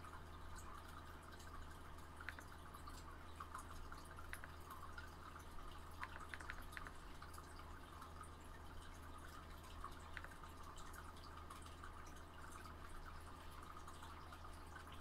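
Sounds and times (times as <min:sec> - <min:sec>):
small water plinks: 0:00.0 - 0:15.0
water trickling and dripping: 0:00.0 - 0:15.0.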